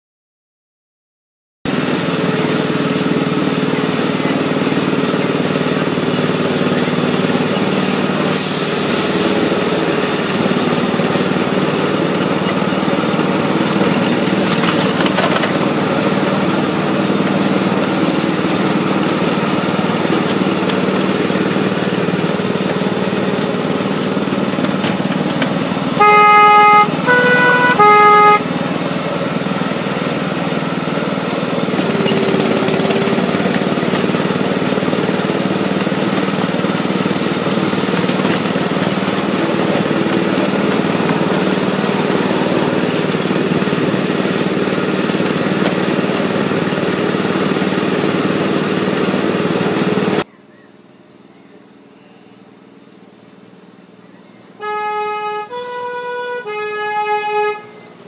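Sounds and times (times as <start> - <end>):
small locomotive engine running: 1.7 - 58.0
locomotive horn: 24.2 - 29.6, 54.6 - 58.0.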